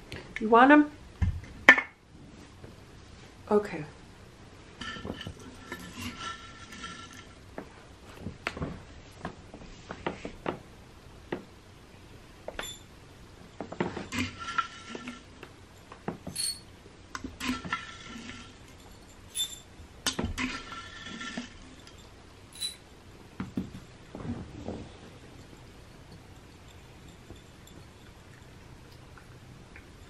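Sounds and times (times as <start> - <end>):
ceramic saucers clinking: 16.3 - 16.7, 17.5 - 19.7, 21.8 - 22.8, 25.4 - 30.0.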